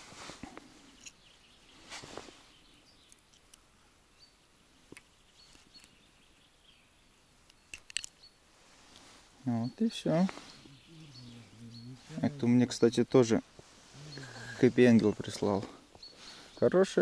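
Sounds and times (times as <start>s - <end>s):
soft rustle: 0.0s - 3.9s, 4.7s - 6.8s, 7.4s - 16.7s
small sharp plastic clicks: 7.5s - 8.2s.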